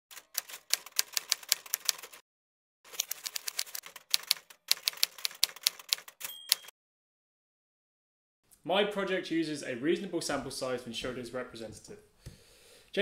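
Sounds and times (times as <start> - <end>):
typewriter keystrokes clacking: 0.1 - 2.2, 2.9 - 6.7
carriage-return bell ring: 6.2 - 6.7.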